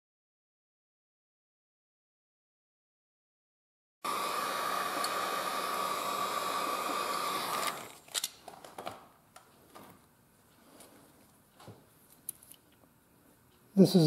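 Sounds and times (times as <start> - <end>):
hot air gun blowing: 4.0 - 8.0.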